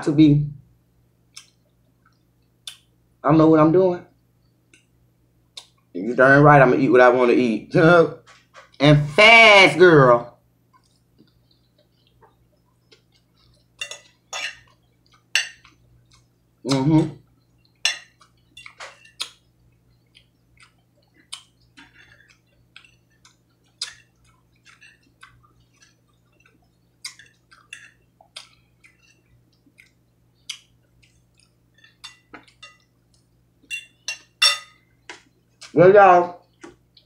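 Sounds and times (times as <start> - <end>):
person chewing with mouth clicks: 1.3 - 2.9, 10.7 - 33.3, 36.4 - 37.0.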